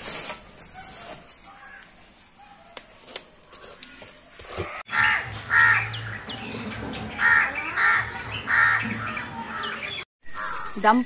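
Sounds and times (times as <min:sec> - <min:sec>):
loud harsh bird call: 0:04.9 - 0:10.8.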